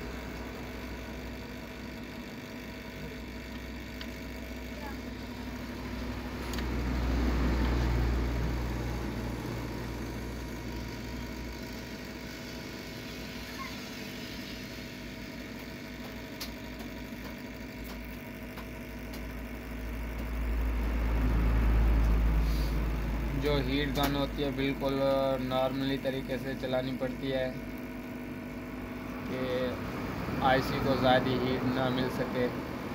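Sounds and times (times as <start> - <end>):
hot air gun blowing: 22.2 - 23.2.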